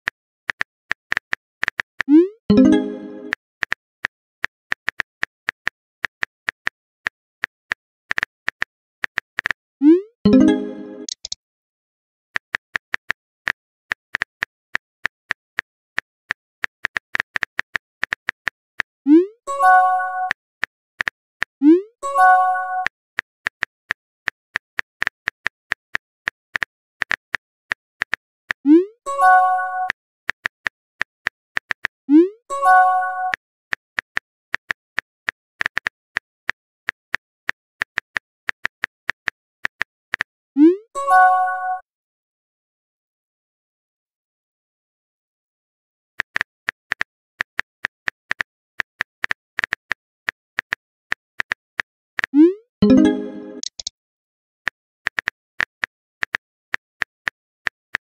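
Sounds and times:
soft keyboard typing clicks: 0.5 - 3.8, 10.3 - 11.4, 52.2 - 53.9
message chime: 2.5 - 3.3, 10.3 - 11.2, 52.8 - 53.9
phone keyboard typing clicks: 10.3 - 11.4, 52.2 - 53.9.

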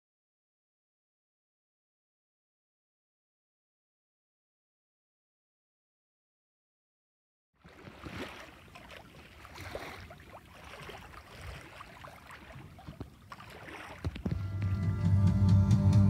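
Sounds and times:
water swishing along hull: 7.6 - 14.7
boat knocks and creaks: 12.6 - 14.8.

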